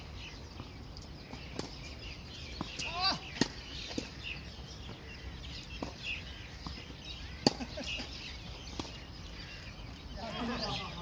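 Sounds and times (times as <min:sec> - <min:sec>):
birds chirping faintly: 0:00.0 - 0:11.0
tennis ball struck with rackets: 0:02.6 - 0:04.2, 0:07.4 - 0:07.7.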